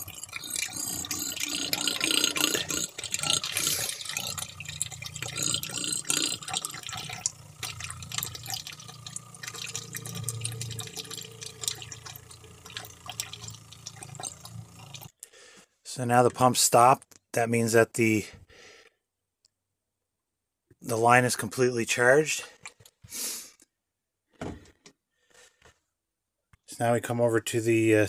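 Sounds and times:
liquid gurgling and splashing: 0.0 - 15.1
water pump humming: 0.0 - 15.2.

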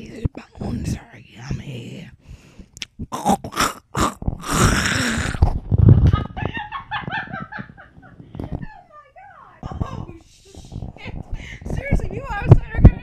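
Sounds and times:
person making goofy vocal noises: 0.0 - 1.5, 2.8 - 6.4.

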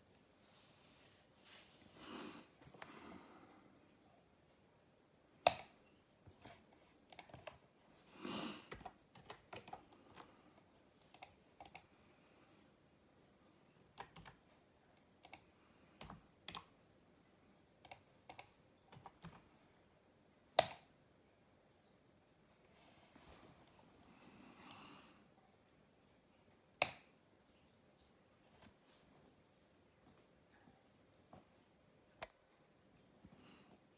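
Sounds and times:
computer keyboard keystrokes: 7.1 - 7.6, 8.7 - 10.3, 11.1 - 11.9, 14.0 - 14.4, 17.8 - 19.4, 20.6 - 20.9.

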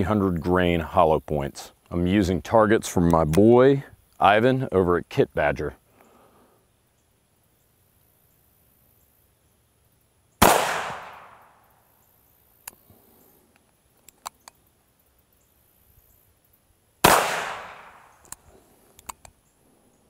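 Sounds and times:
loud revolver shot: 10.4 - 11.6, 17.0 - 18.2
short sharp clicks: 19.0 - 19.4.

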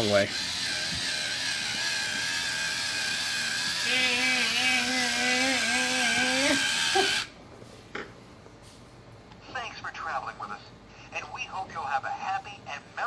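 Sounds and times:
toy motor whirring: 0.0 - 7.3.

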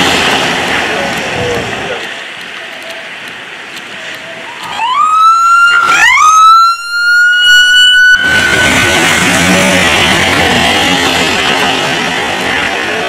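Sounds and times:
truck passing on wet road: 0.0 - 4.8, 8.0 - 13.0
ambulance siren: 4.4 - 11.5.

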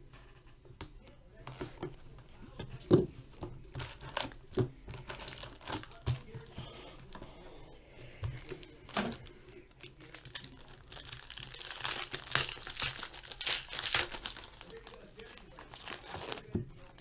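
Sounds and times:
foil wrapper crinkling: 3.7 - 7.2, 8.4 - 17.0
foil crackling: 3.7 - 7.3, 8.4 - 17.0.

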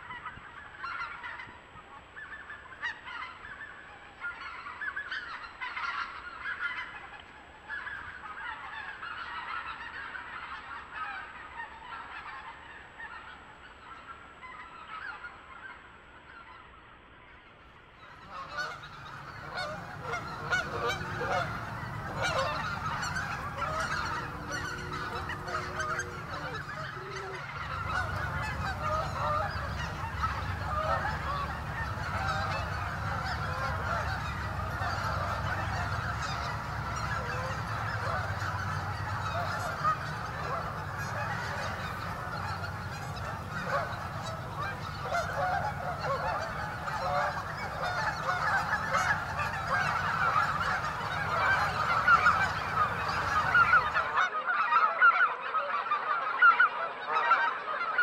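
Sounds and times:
geese honking: 0.0 - 15.7, 18.0 - 58.0
low steady rumble: 18.4 - 54.2.

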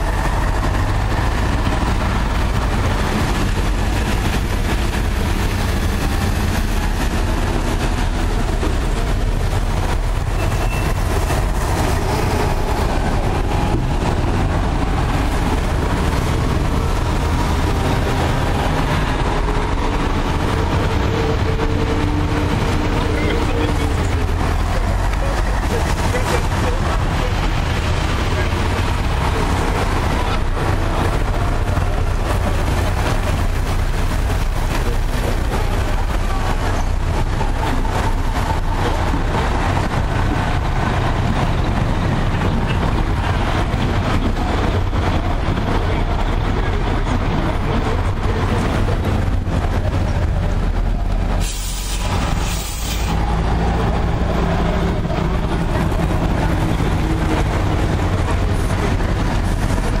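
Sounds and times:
diesel engines running: 0.0 - 60.0
tyres hissing on wet road: 22.2 - 60.0.

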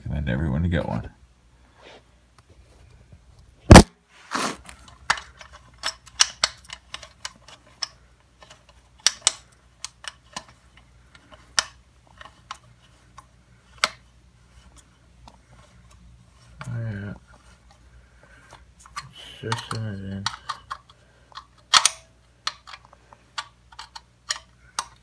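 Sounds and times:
sharp loud knock: 3.7 - 4.5.

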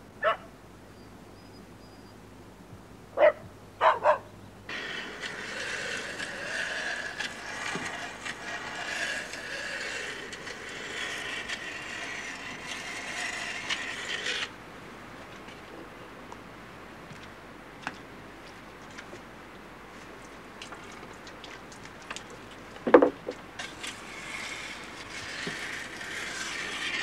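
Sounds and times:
dog barking: 0.2 - 0.5, 3.2 - 4.3
blade scraping on grindstone: 4.7 - 14.5, 23.6 - 27.0.

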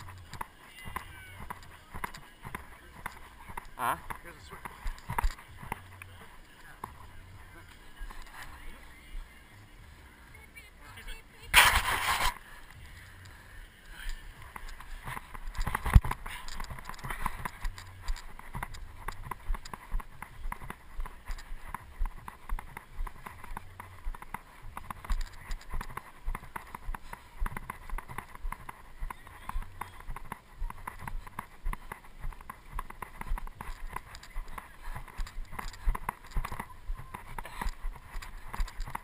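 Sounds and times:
footsteps on dry grass: 0.0 - 9.4, 11.5 - 13.2, 13.9 - 39.0
camera rubbing in hand: 11.6 - 12.4, 14.4 - 39.0.

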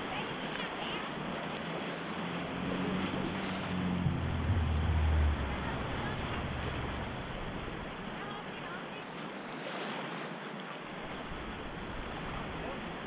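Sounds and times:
whitewater rushing on rapids: 0.0 - 8.9
low rumble: 3.7 - 8.2.

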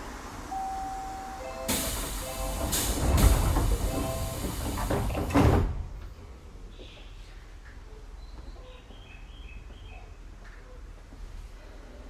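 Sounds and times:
door chime: 0.5 - 2.6
train doors shutting thud: 0.9 - 6.2
compressed air hiss: 1.7 - 5.0.

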